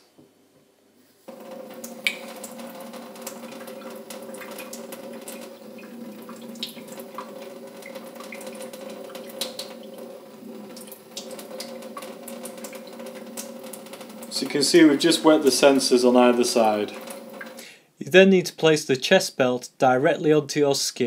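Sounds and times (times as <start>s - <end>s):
tap water stream into steel sink: 1.3s - 17.6s
small splashes and ticks: 1.8s - 10.0s.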